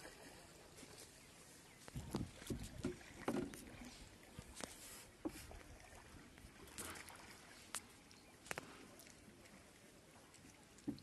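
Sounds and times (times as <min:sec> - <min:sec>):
light knocks on wooden boat: 0:02.0 - 0:03.7.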